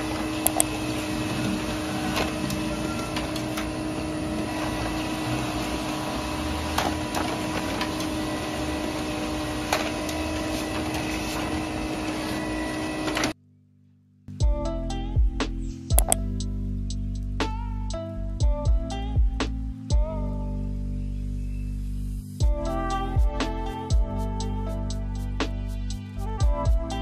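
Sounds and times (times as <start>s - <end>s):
printer whirring hum: 0.0s - 13.4s
printer clicks: 0.4s - 0.8s.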